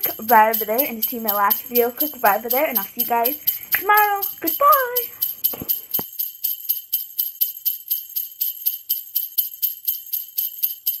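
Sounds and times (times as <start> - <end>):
sleigh bells shaking: 0.0 - 11.0.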